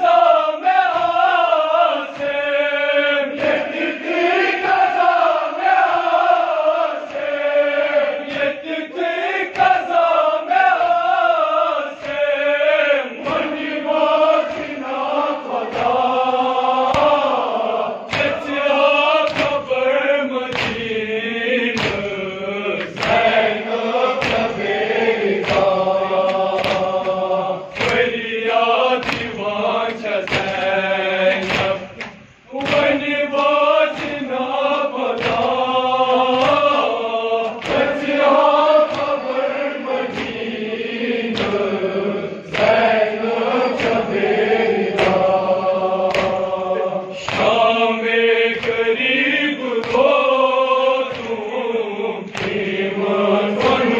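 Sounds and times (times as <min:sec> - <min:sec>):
men chanting in unison: 0:00.0 - 0:53.9
hands beating on chests: 0:19.2 - 0:19.7, 0:20.5 - 0:20.9, 0:21.7 - 0:22.1, 0:24.1 - 0:24.6, 0:25.3 - 0:28.1, 0:29.0 - 0:29.4, 0:31.3 - 0:34.2, 0:46.0 - 0:46.5.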